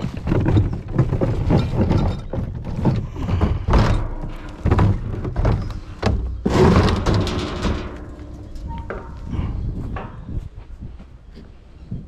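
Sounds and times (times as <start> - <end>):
plastic wheelie bin knocking: 0.0 - 8.0.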